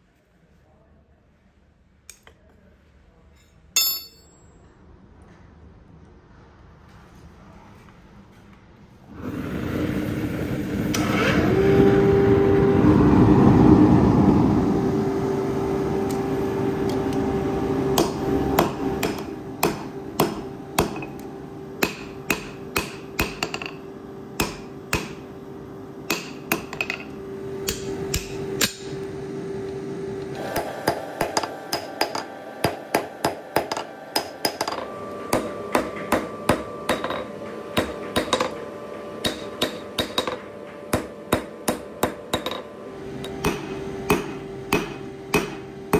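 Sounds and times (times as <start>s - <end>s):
hammer blows on anvil: 3.8s - 4.6s, 17.9s - 21.2s, 21.8s - 23.8s, 24.4s - 25.2s, 26.1s - 29.0s, 30.4s - 38.6s, 39.2s - 45.9s
forge fire and blower rumble: 9.1s - 45.9s.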